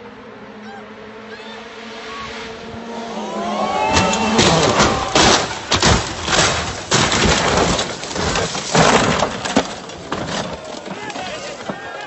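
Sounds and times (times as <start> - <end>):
car crashing while rolling over: 3.3 - 12.0.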